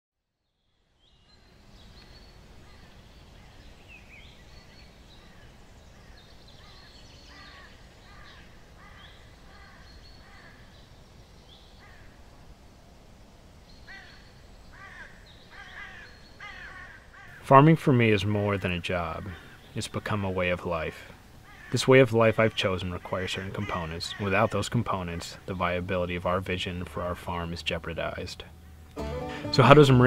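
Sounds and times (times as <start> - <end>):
birds calling: 1.1 - 12.8, 13.5 - 30.0.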